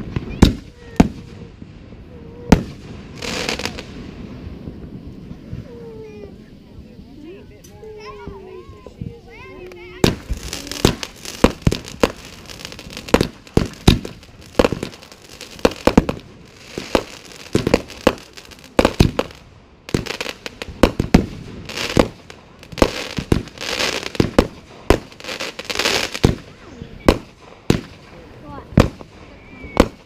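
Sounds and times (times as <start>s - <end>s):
fireworks bangs and pops: 0.0s - 30.0s
fireworks crackling: 0.0s - 30.0s.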